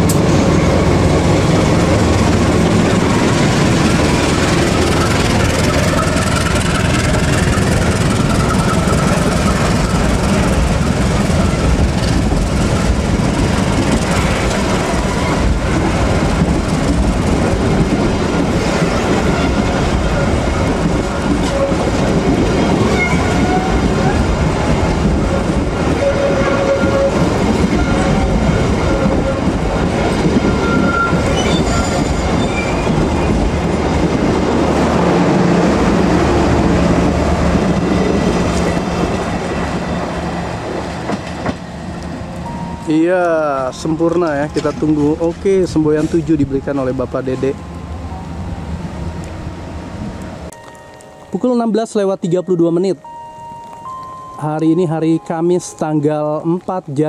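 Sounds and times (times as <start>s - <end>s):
diesel locomotive engine running: 0.0s - 51.0s
train coaches rolling on rails: 0.0s - 57.0s
thin high tones: 50.5s - 56.1s.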